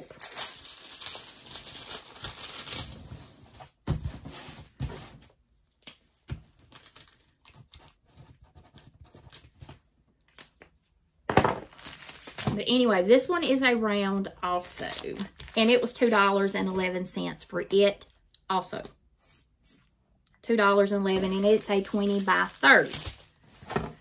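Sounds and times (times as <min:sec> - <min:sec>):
plastic packaging crinkling: 0:00.0 - 0:03.3, 0:11.6 - 0:12.6, 0:14.6 - 0:16.6, 0:21.1 - 0:24.0.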